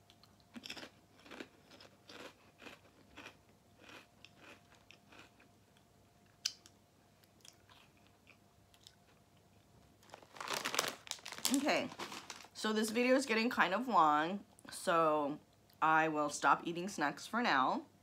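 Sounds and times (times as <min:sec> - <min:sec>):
chewing crunchy chips: 0:00.0 - 0:12.5.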